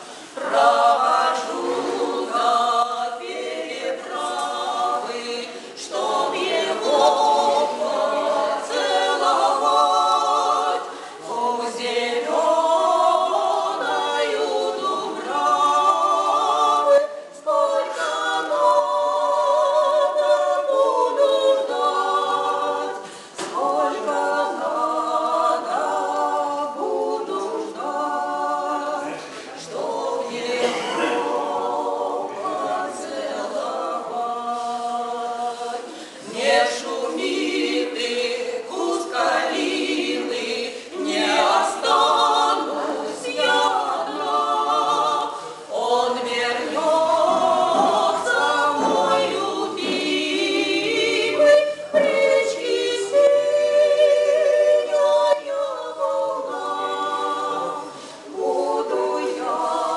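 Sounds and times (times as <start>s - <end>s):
women singing in harmony: 0.0s - 59.9s.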